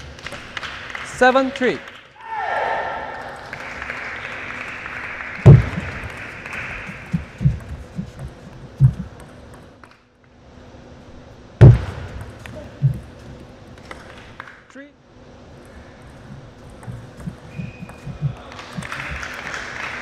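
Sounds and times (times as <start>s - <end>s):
thin applause: 0.0s - 7.1s, 18.3s - 20.0s
feet thumping on floor: 5.5s - 6.1s, 11.6s - 12.1s.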